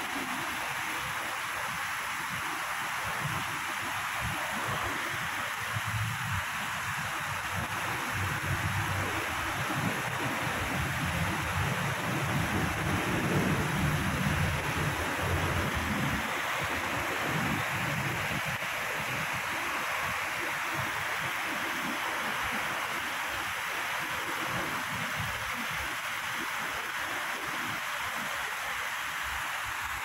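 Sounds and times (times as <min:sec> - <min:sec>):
water rushing over concrete: 0:00.0 - 0:30.0
wind buffeting microphone: 0:04.2 - 0:21.2.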